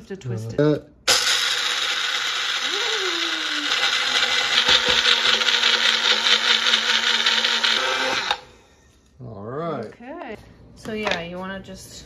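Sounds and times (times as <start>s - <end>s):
blender grinding dry kibble: 1.1s - 8.6s.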